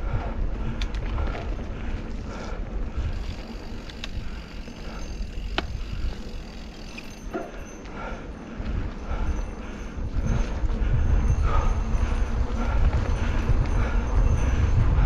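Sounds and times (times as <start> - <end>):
wind buffeting microphone: 0.0 - 15.0
bike clicks and knocks: 0.1 - 9.4.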